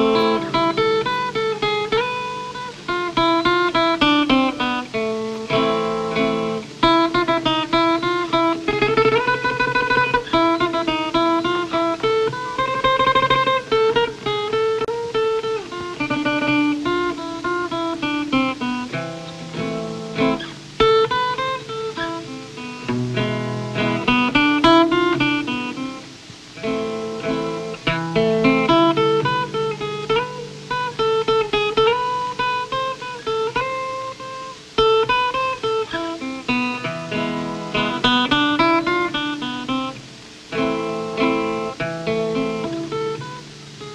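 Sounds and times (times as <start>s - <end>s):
guitar bass notes: 0.0s - 33.2s
guitar picked melody: 0.0s - 43.9s.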